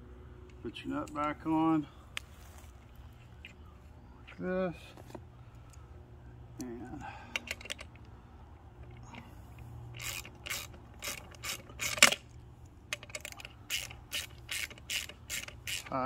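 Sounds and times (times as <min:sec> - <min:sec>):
metal hardware clicks: 0:06.6 - 0:08.2, 0:08.8 - 0:16.0
ratchet clicking: 0:08.9 - 0:16.0.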